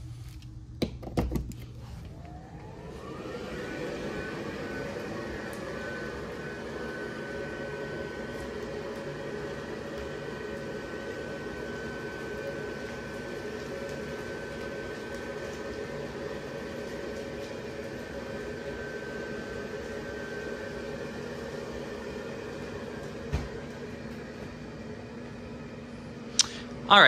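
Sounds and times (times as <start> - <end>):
blower fan whine: 0.0 - 27.0.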